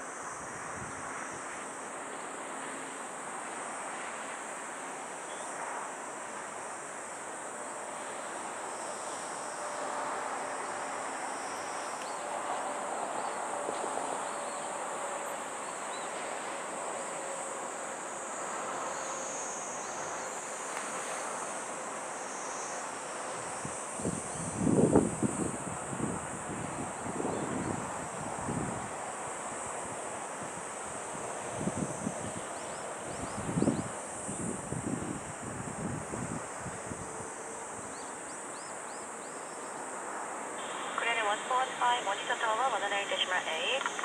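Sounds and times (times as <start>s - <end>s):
insects chirring: 4.4s - 44.0s
wind on microphone: 24.0s - 28.9s, 33.1s - 37.2s
distant jet engine: 40.6s - 44.0s.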